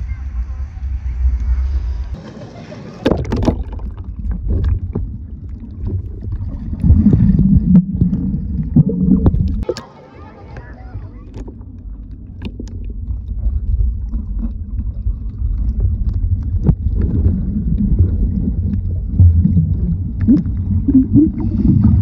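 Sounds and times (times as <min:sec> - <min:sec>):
muffled underwater rumble: 0:00.0 - 0:02.2, 0:03.0 - 0:22.0
sharp clicks and pops: 0:11.3 - 0:13.4.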